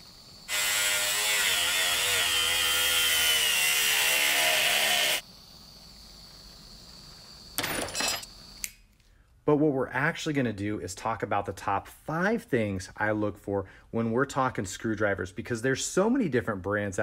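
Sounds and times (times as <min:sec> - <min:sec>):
angle grinder cutting plastic: 0:00.5 - 0:05.2.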